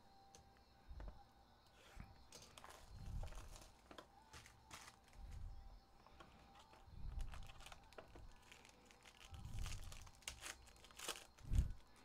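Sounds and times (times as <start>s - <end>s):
foil wrapper crinkling: 2.3s - 5.3s, 6.6s - 12.0s.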